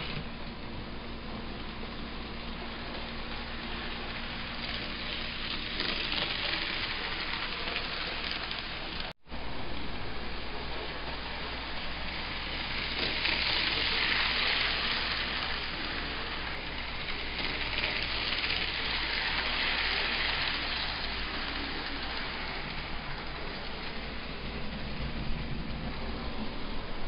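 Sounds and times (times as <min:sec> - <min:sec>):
electric locomotive running: 0:00.0 - 0:27.0
steady low hum: 0:00.0 - 0:27.0.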